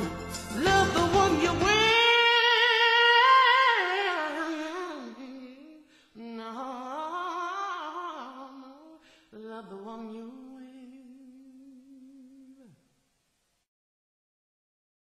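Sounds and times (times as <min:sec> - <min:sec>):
man singing unaccompanied: 0:00.0 - 0:05.2.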